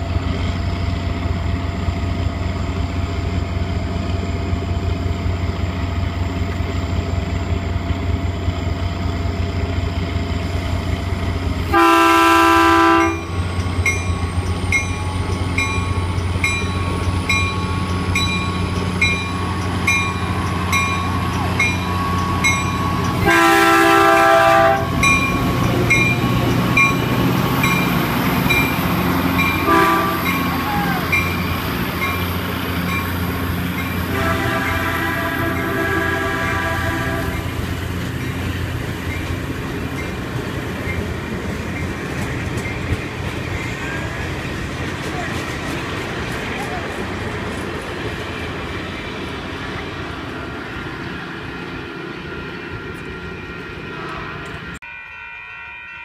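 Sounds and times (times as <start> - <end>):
diesel locomotive idling: 0.0 - 54.8
train horn blasts: 11.7 - 13.4, 23.2 - 25.2, 29.5 - 31.2, 34.0 - 37.5
bell ringing: 13.2 - 23.2, 24.9 - 33.2, 52.6 - 56.0.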